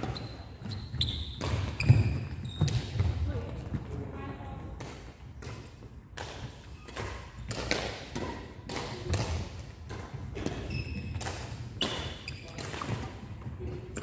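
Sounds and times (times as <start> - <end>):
shoe squeaks: 0.0 - 3.1, 10.4 - 11.2, 11.8 - 12.7
rackets striking shuttlecock: 4.8 - 13.0.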